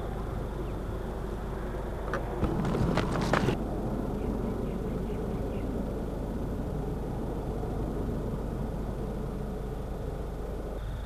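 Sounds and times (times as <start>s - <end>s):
distant jet engines rumbling: 0.0s - 11.0s.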